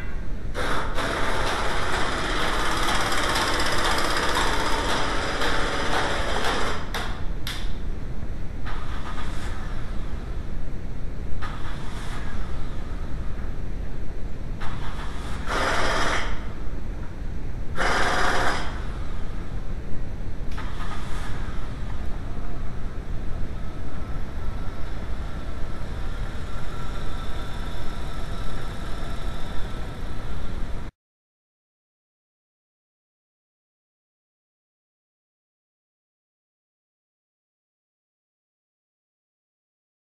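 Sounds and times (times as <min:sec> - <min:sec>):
loud bursts of noise: 0:00.0 - 0:07.3, 0:14.6 - 0:16.6, 0:17.7 - 0:19.5.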